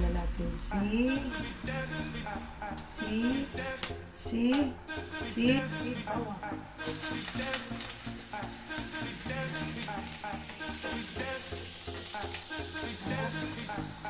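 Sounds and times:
background music: 0.0 - 14.0
garlic sizzling in hot oil: 6.8 - 14.0.

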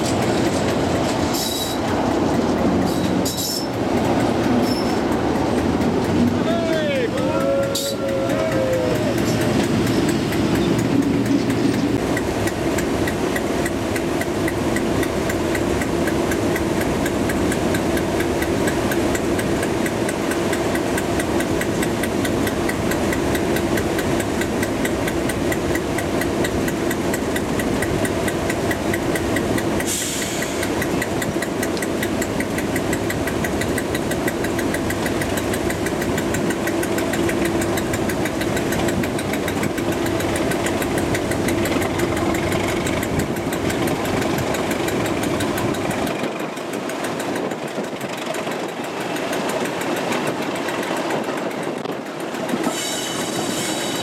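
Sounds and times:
diesel locomotive engine idling: 0.0 - 54.0
short hiss: 29.9 - 30.7.

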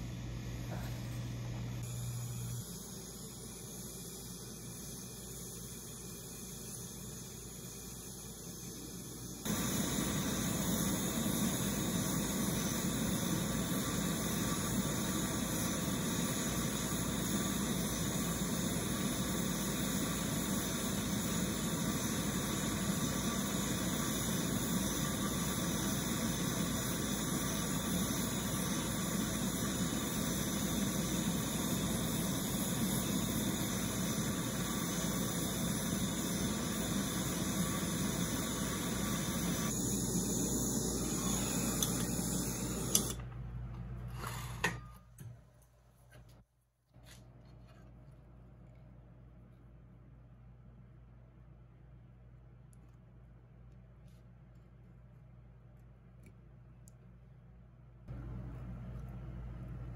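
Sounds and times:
gas torch flame roaring: 1.8 - 43.3.

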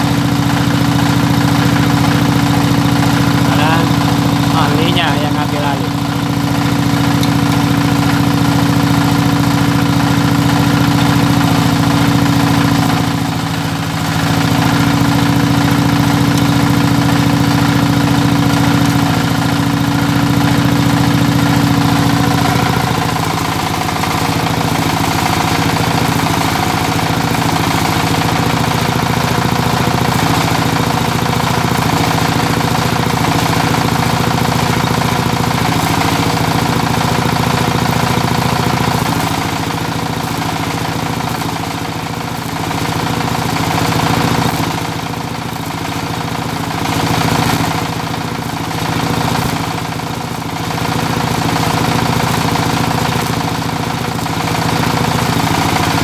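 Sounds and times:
generator engine running: 0.0 - 56.0.

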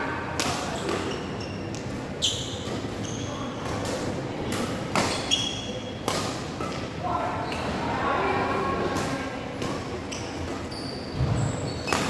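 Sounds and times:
shoes squeaking on court: 0.7 - 4.1, 5.0 - 7.8, 9.7 - 12.0.

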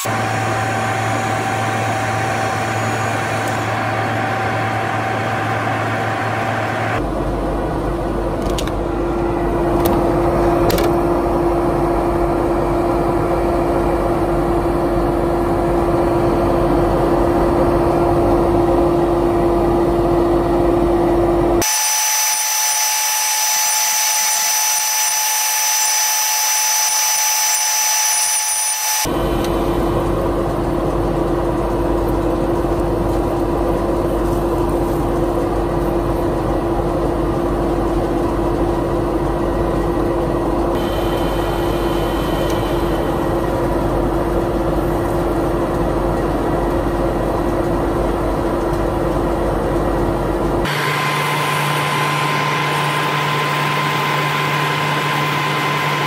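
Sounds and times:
wood lathe motor hum: 0.0 - 7.0, 21.6 - 29.1, 50.7 - 56.0.

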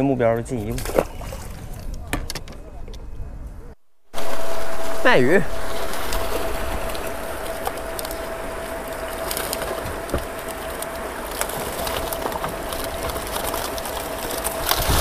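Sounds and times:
faint high whine: 3.6 - 15.0
fish thrashing: 5.5 - 15.0.

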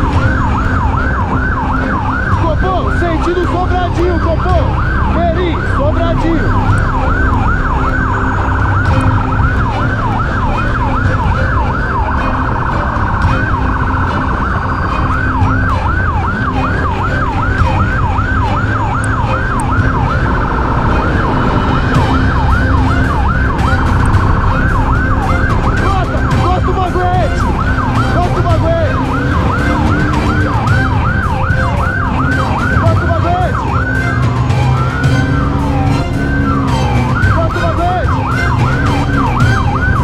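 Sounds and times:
police siren yelping: 0.0 - 40.0
vehicle engine and road rumble: 0.0 - 40.0.

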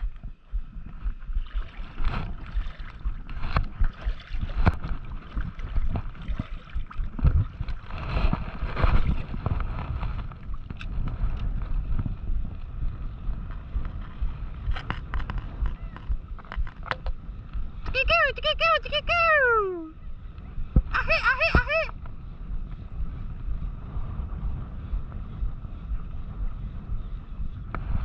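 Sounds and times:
seawater splashing and lapping: 0.0 - 19.2
wind buffeting microphone: 0.0 - 28.0.

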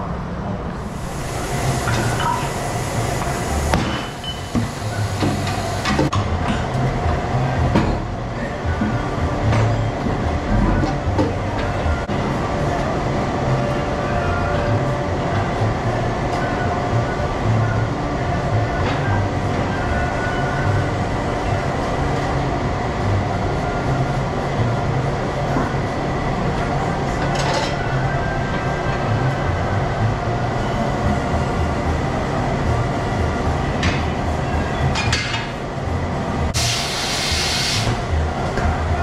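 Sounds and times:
machinery low rumble: 0.0 - 39.0
compressed air hissing: 0.8 - 6.1, 36.6 - 38.1.

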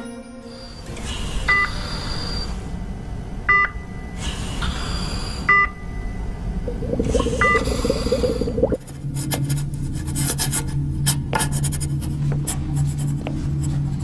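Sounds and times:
low hum: 1.9 - 9.3
patient monitor two-tone beep: 5.5 - 8.7.

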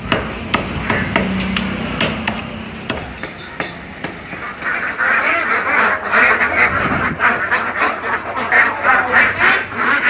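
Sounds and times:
ducks quacking: 3.2 - 10.0.

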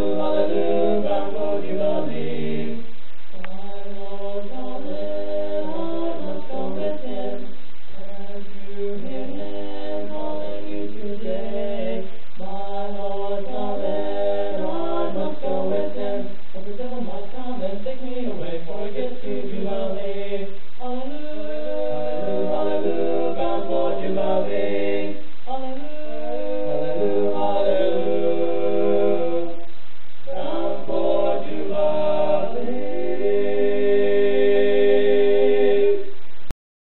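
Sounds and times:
group singing in harmony: 0.0 - 36.2.

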